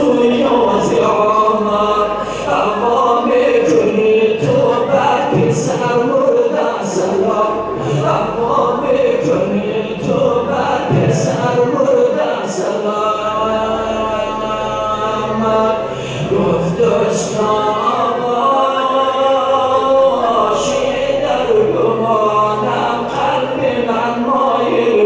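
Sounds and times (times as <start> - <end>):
man chanting unaccompanied: 0.0 - 25.0.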